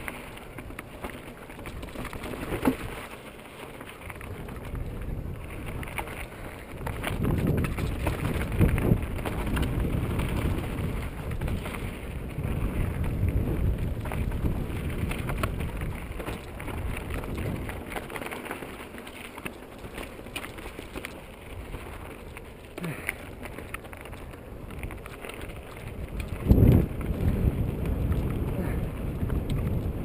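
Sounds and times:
bike rattles and clicks: 0.0s - 30.0s
tyres rolling over gravel: 0.0s - 30.0s
wind rushing over microphone: 4.2s - 18.0s, 25.8s - 30.0s.

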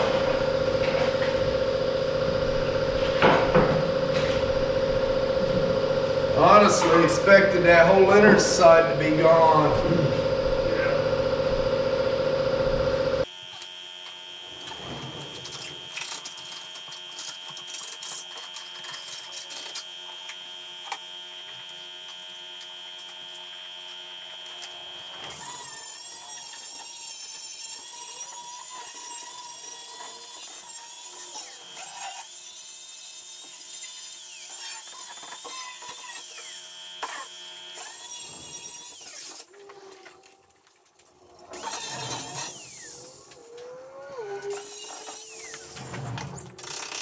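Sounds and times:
angle grinder grinding metal: 2.2s - 11.6s, 21.7s - 47.0s.

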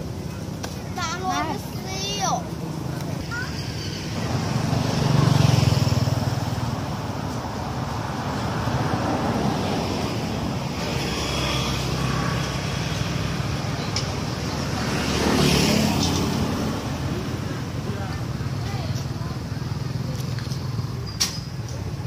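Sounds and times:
vehicles passing: 0.0s - 22.0s.

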